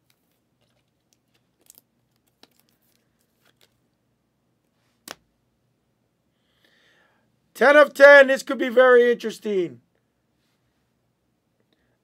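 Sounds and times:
trading cards rustling and clicking: 0.0s - 3.8s.

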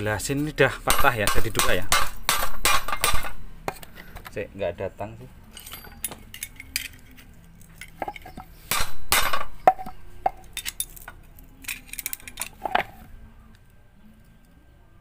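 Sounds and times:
metal clinks and taps: 5.5s - 12.9s.

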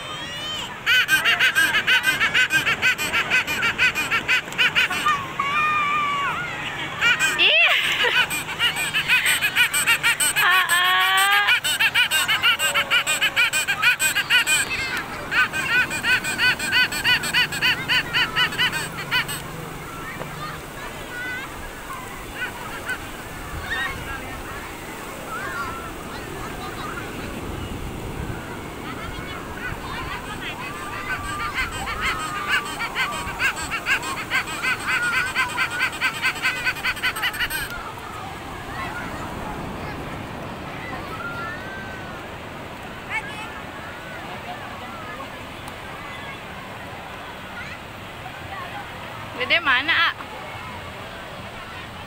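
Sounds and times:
surf: 0.0s - 52.0s
young child laughing: 0.3s - 21.5s, 28.9s - 37.8s.

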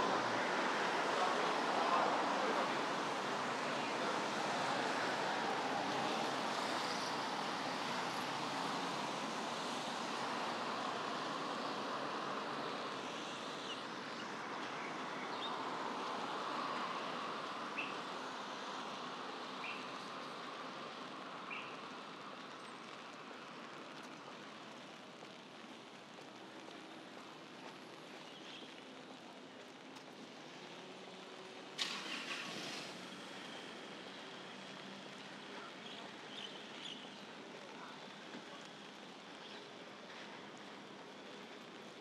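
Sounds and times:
traffic on wet road: 0.0s - 42.0s
brief loud hiss: 31.8s - 33.2s.

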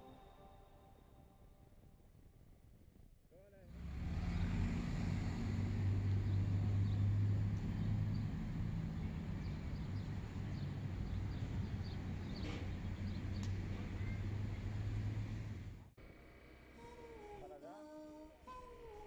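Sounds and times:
motorcycle engine humming: 3.7s - 17.5s.

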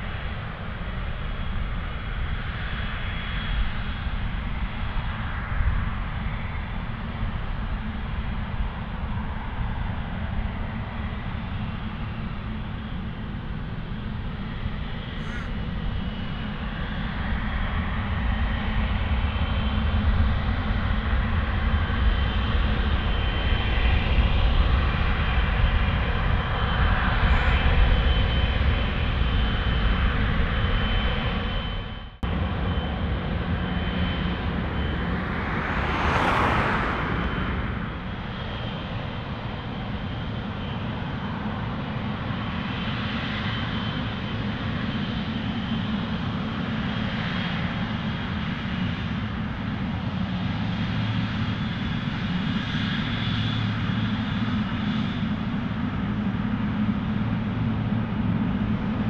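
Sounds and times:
jet engines rumbling: 0.0s - 59.0s.

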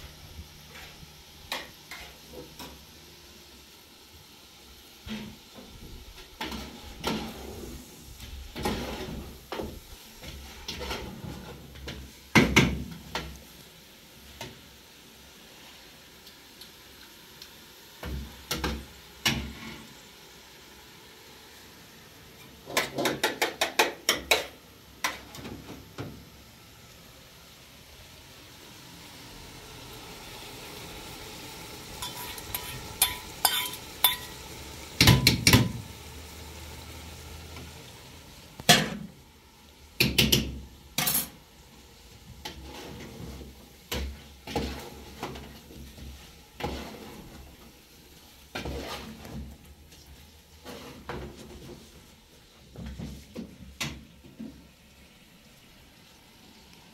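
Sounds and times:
faint hiss: 0.0s - 23.0s, 23.8s - 56.9s
pots and dishes clinking: 22.6s - 25.7s, 32.0s - 34.4s, 35.0s - 35.8s, 40.0s - 41.4s.

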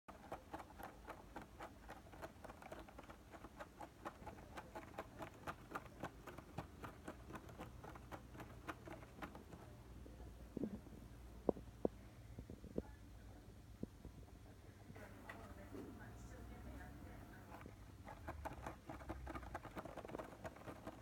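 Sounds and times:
kitten scratching cardboard: 0.1s - 9.8s, 17.4s - 21.0s.

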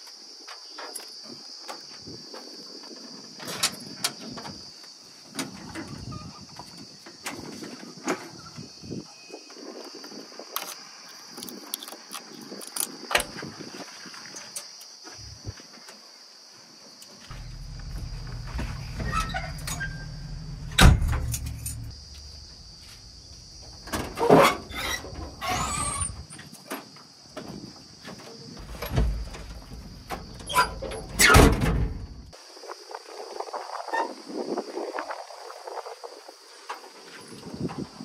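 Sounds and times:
sliding squeal: 17.3s - 21.9s, 24.2s - 26.4s, 30.4s - 31.4s
low engine rumble with knock: 17.3s - 23.5s.

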